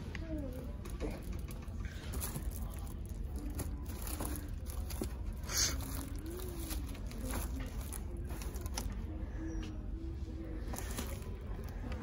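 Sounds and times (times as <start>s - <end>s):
store background hum: 0.0s - 12.0s
plastic wrap rustling: 0.6s - 9.2s, 10.6s - 11.7s.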